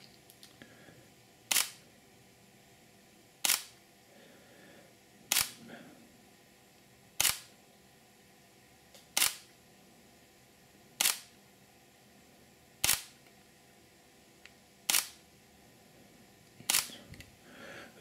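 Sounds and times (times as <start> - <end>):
camera shutter clicks: 1.5 - 1.8, 3.4 - 3.8, 5.3 - 5.6, 7.2 - 7.5, 9.1 - 9.5, 11.0 - 11.3, 12.8 - 13.2, 14.9 - 15.2, 16.7 - 16.9.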